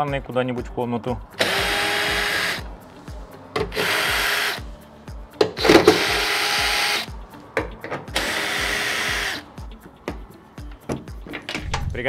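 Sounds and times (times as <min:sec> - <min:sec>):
cordless drill spinning: 0:01.4 - 0:02.7, 0:03.7 - 0:04.6, 0:05.6 - 0:07.1, 0:08.2 - 0:09.4.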